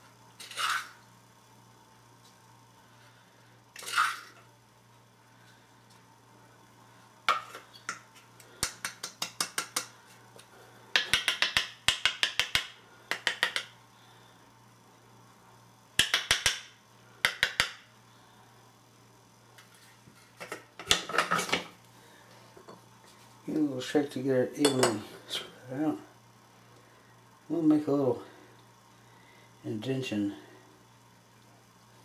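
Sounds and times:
metal spoon clinking and scraping: 0.4s - 1.0s.

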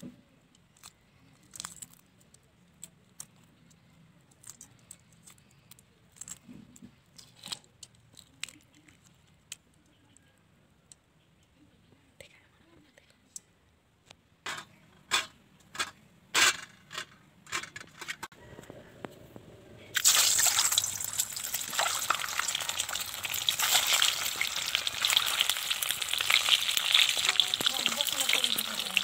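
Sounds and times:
loud steady sizzle: 19.9s - 29.0s
eggs crackling in hot oil: 20.0s - 29.0s.

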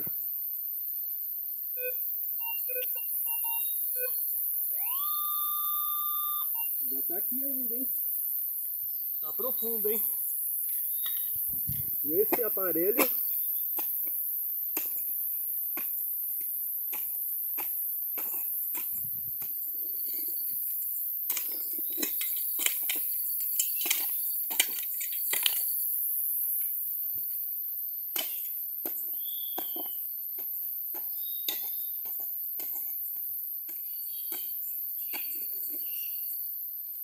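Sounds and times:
insects chirring: 0.0s - 37.0s
pick striking dry soil: 10.6s - 19.7s, 28.1s - 36.0s.

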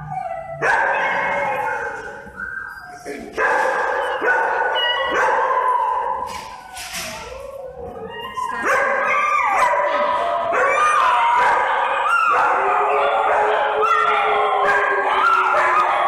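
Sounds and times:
small dog barking and howling: 3.5s - 16.0s.

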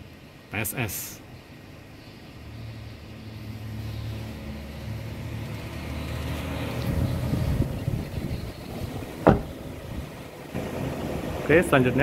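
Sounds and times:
handling rumble and rustling: 6.7s - 12.0s.

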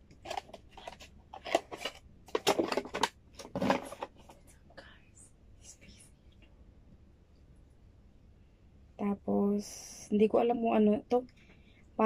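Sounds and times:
cardboard packaging rustling: 0.1s - 4.4s.

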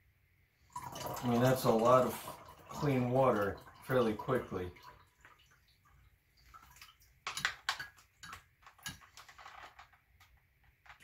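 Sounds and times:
water trickling into glass: 0.7s - 9.0s.

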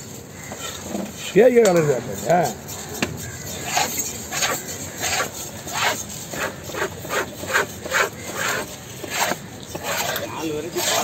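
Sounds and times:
knife scraping and slicing fish: 2.7s - 11.0s.

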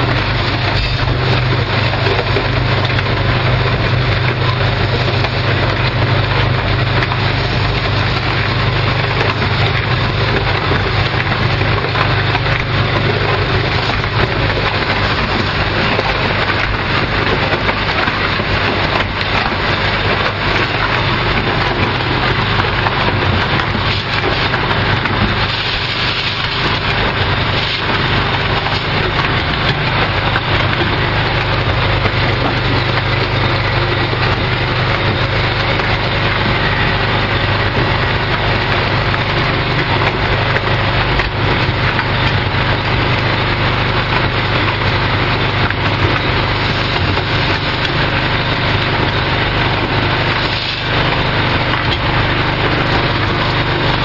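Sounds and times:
generator engine running: 0.0s - 54.0s.

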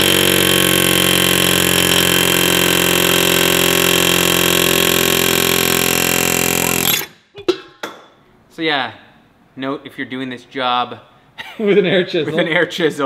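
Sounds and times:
air hammer hammering rapidly: 0.0s - 7.2s.

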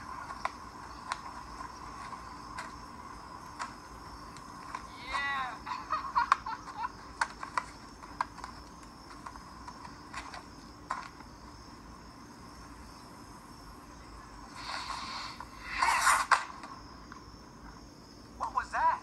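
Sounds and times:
crickets chirring: 0.0s - 19.0s
short hiss: 14.5s - 16.6s.

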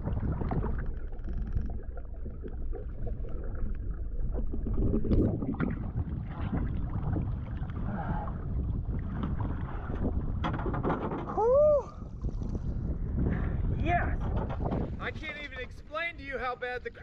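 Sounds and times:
water sloshing and splashing: 0.0s - 13.3s.

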